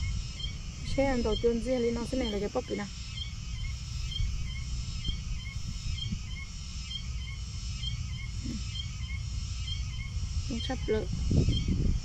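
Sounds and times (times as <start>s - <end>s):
steady low rumble: 0.0s - 12.0s
low animal call: 8.1s - 10.6s.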